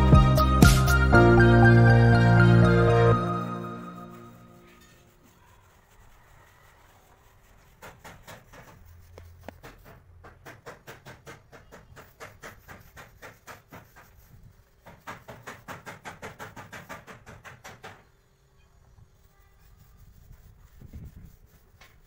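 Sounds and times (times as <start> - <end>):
paintbrush scrubbing on rubber: 3.8 - 10.1, 12.0 - 15.6, 19.1 - 22.0.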